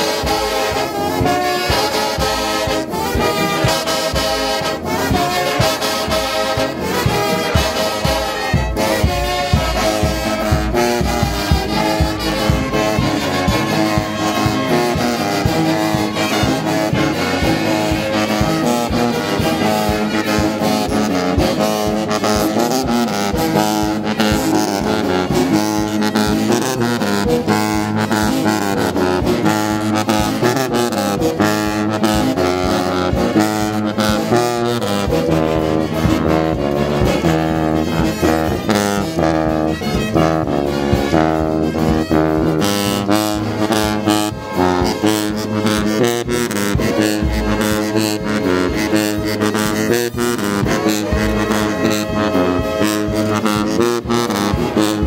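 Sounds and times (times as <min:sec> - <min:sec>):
brass band playing: 0:00.0 - 0:55.0.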